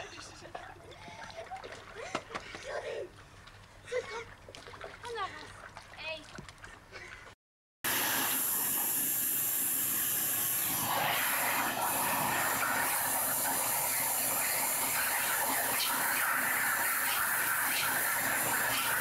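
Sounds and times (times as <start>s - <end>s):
shop vacuum running: 7.8s - 19.0s.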